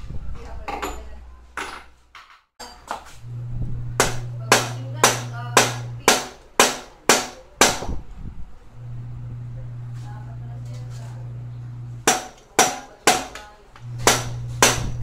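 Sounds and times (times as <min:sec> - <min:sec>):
low steady hum: 0:03.2 - 0:06.2, 0:08.2 - 0:12.4, 0:13.7 - 0:15.0.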